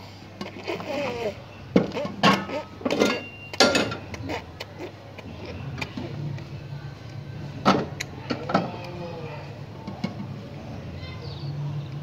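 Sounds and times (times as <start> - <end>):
pots knocking and scraping on stove: 1.8 - 4.1.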